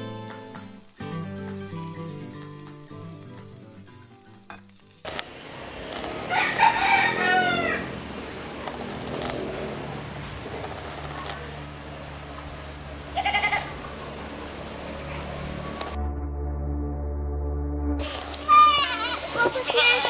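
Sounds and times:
outdoor background noise: 0.0 - 17.2, 18.0 - 20.0
rooster crowing: 6.2 - 8.1
bird chirps: 9.0 - 9.8, 13.9 - 15.9
intro music: 13.8 - 19.4.

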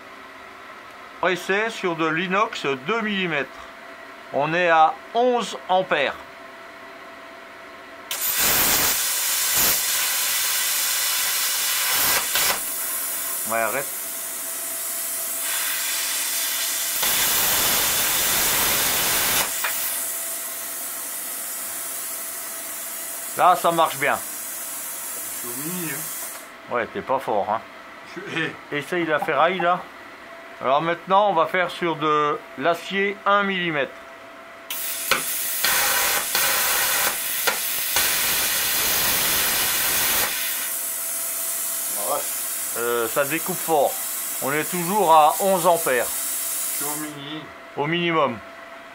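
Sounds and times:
air hissing from torch: 8.1 - 26.5, 34.7 - 47.2
plasma arc cutting steel: 8.1 - 26.5, 34.7 - 47.1.

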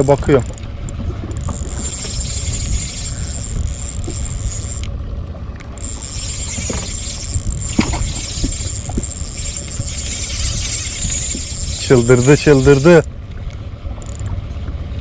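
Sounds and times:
boat noise: 0.0 - 15.0
wind rumble: 0.0 - 15.0
faint clicks: 0.2 - 4.9, 5.6 - 14.4
thin high whine: 1.4 - 4.9, 5.8 - 13.1.

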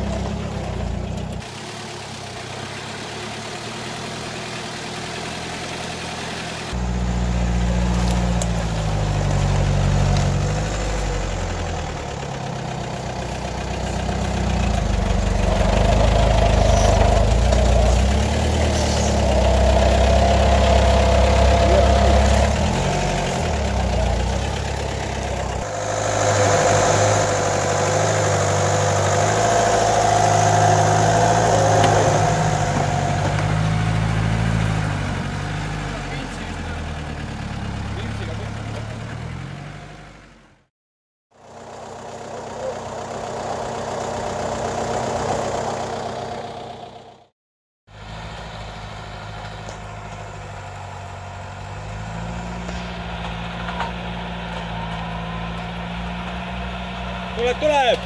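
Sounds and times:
off-road engine under load: 0.0 - 40.7, 41.3 - 58.0
high whine: 25.6 - 33.4.

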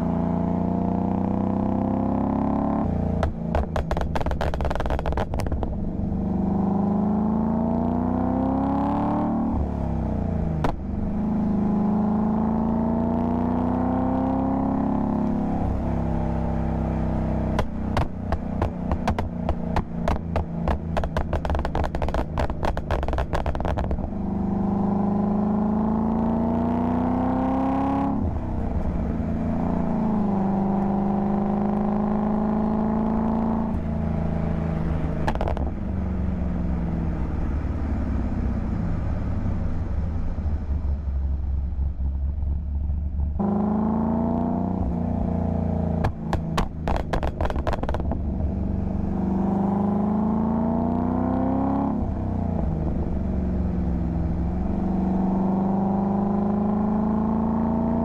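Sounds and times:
car engine accelerating through gears: 0.0 - 41.0, 43.0 - 58.0
exhaust pops and crackles: 3.2 - 5.8, 10.6 - 10.8, 17.5 - 24.1, 35.2 - 35.9, 45.9 - 48.6.

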